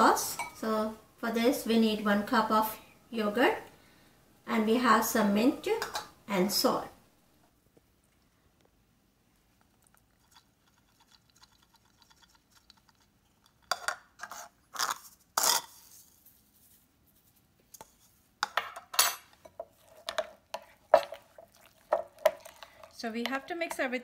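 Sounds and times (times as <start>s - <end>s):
metal spoons clinking on glass bowls: 0.4s - 0.6s
spoon scraping glass bowl: 10.0s - 16.1s, 19.4s - 23.9s.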